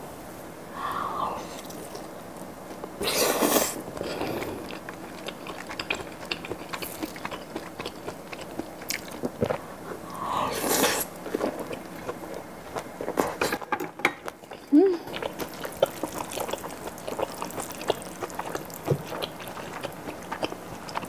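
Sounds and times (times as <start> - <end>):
chewing with sharp clicks: 4.6 - 9.6, 14.2 - 21.0.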